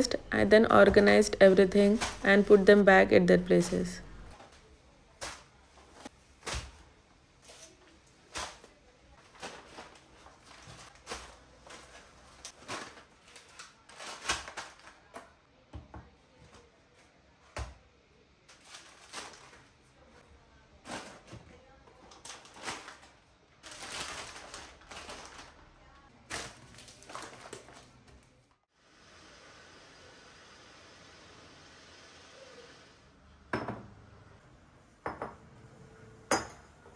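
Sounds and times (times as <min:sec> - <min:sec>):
groceries clicking and rustling: 0:07.4 - 0:15.4, 0:18.5 - 0:19.9, 0:20.8 - 0:28.6.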